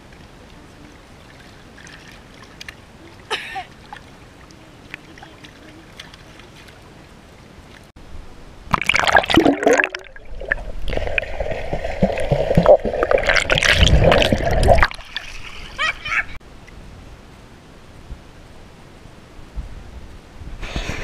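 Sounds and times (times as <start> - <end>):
water lapping: 0.0 - 7.9
underwater rumble and bubbling: 8.7 - 15.0.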